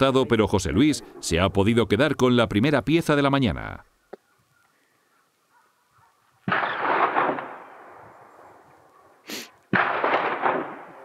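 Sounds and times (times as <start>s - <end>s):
rifle shots echoing: 6.5s - 8.6s, 9.7s - 11.0s
sharp hiss: 9.2s - 9.6s.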